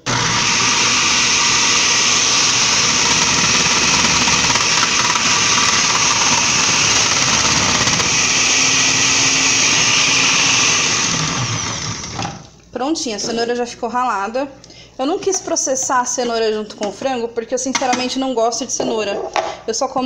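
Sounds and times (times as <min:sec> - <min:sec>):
food processor shredding carrot: 0:00.0 - 0:12.5.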